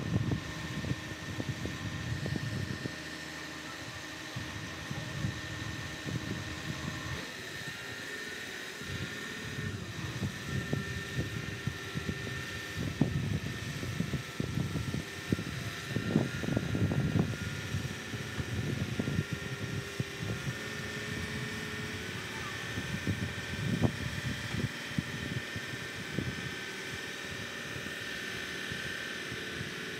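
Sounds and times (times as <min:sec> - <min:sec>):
low engine rumble: 0:00.0 - 0:07.2
crane hydraulics whine: 0:00.0 - 0:29.9.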